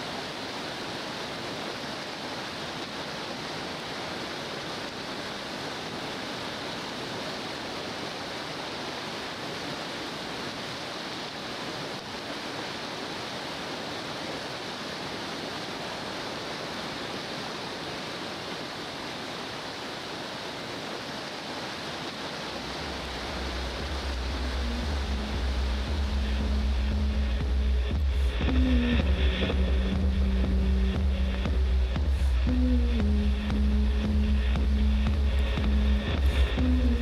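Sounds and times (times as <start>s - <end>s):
river rapids rushing: 0.0s - 37.0s
low steady hum: 22.0s - 37.0s.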